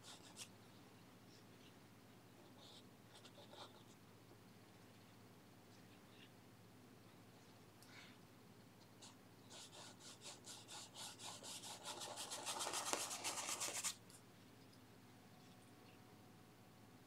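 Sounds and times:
paintbrush scrubbing on canvas: 9.6s - 14.0s.

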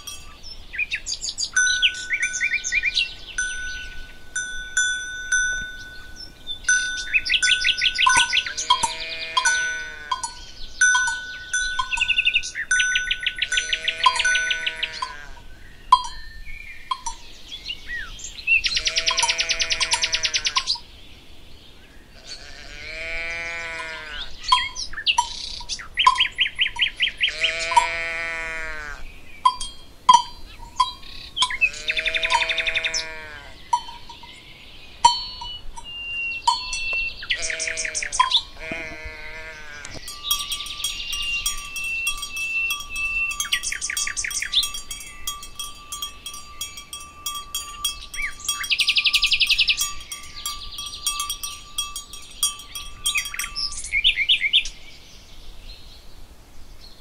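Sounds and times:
bells ringing: 0.0s - 0.6s, 1.5s - 17.4s, 19.0s - 20.8s, 29.4s - 32.8s, 33.7s - 38.6s, 39.4s - 54.2s
livestock calling: 0.0s - 16.0s, 18.0s - 20.8s, 22.2s - 54.2s
birds chirping and trilling: 0.0s - 57.0s.

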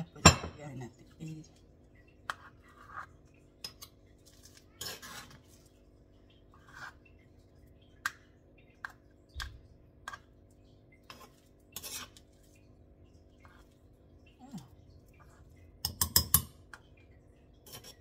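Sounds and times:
spoon scraping and clinking: 2.4s - 5.4s, 11.1s - 12.3s, 17.6s - 18.0s.

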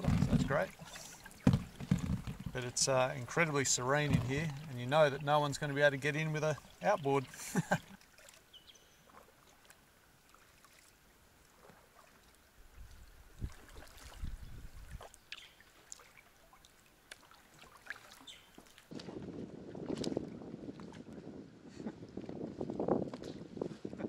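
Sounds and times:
soft low thumps: 0.0s - 0.6s, 1.4s - 3.0s, 3.9s - 4.7s
paddle blades dipping in water: 0.0s - 21.3s.

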